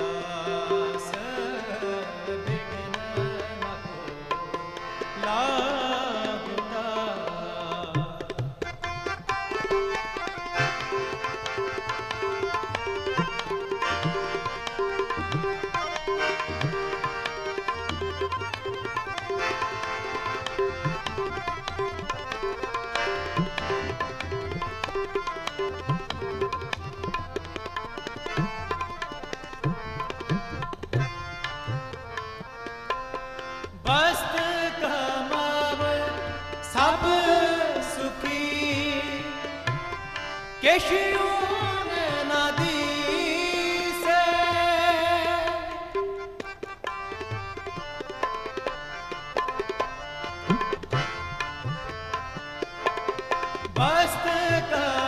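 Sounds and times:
voices singing: 0.0 - 8.4, 33.9 - 46.2
harmoniums playing: 0.0 - 55.0
tabla rhythm: 0.0 - 55.0.

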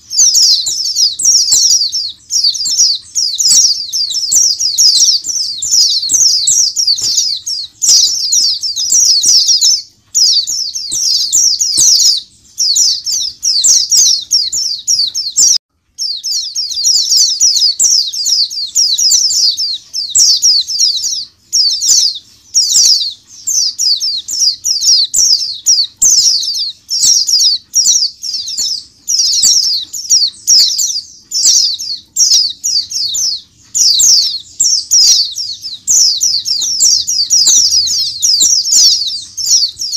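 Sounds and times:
flock of birds chirping: 0.0 - 39.9.

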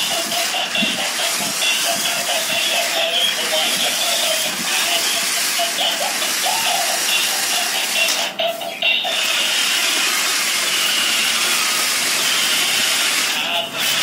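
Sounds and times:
toy car motors whining: 0.0 - 14.0.

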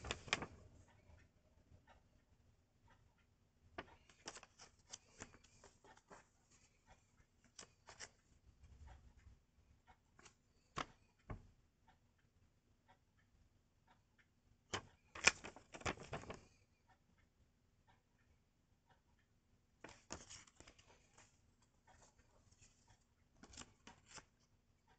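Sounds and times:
stiff paper rustling: 15.2 - 16.4, 19.9 - 21.3.

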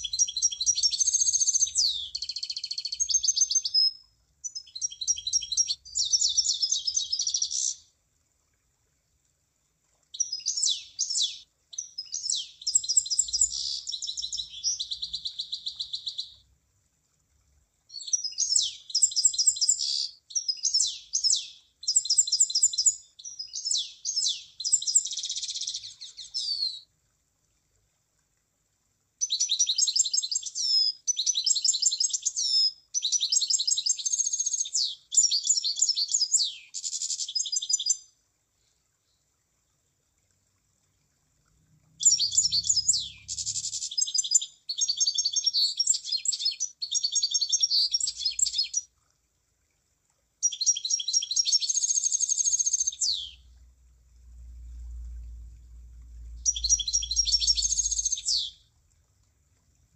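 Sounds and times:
bird singing high chattering phrases: 42.0 - 48.8, 50.4 - 53.5, 56.4 - 58.6
low rumble: 53.4 - 59.0.

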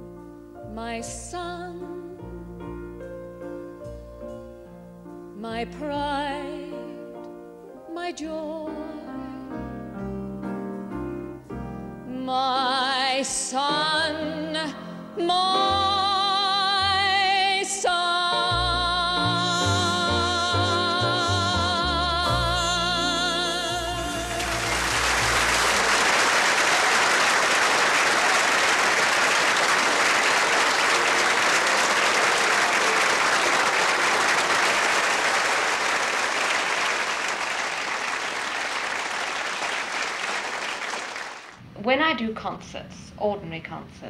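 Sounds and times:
woman singing with vibrato: 12.1 - 25.0
audience applause: 24.2 - 41.6.

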